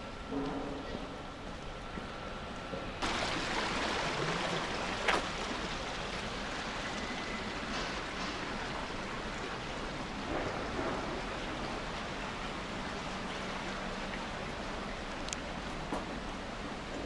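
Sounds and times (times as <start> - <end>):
water rushing down a channel: 3.0 - 17.0.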